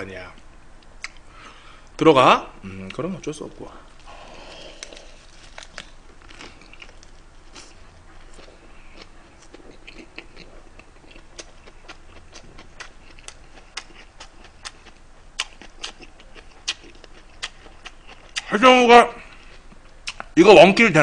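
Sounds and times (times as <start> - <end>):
man chewing wet mouth smacks: 1.0 - 1.3, 6.2 - 18.5, 19.3 - 20.3.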